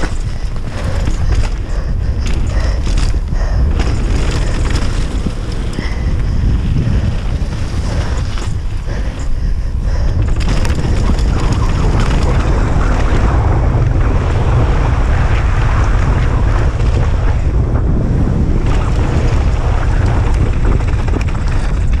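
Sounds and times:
tyres rolling on gravel: 0:00.0 - 0:13.8
bike clicks and rattles: 0:00.0 - 0:14.6, 0:18.2 - 0:22.0
wind on microphone: 0:00.0 - 0:22.0.

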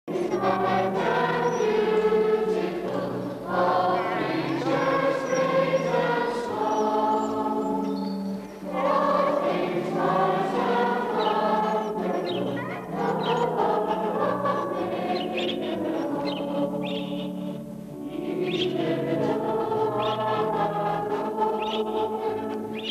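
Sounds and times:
congregation singing a hymn: 0:00.1 - 0:22.9.

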